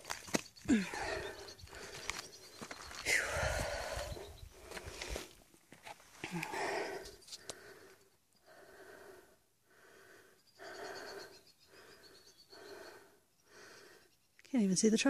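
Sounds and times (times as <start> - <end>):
woman breathing heavily: 0.6 - 5.5, 6.1 - 14.2.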